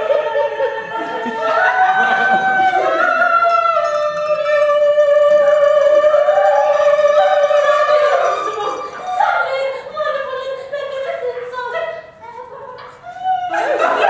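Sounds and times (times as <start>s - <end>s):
person singing: 0.0s - 11.8s
string instrument playing: 0.9s - 10.1s.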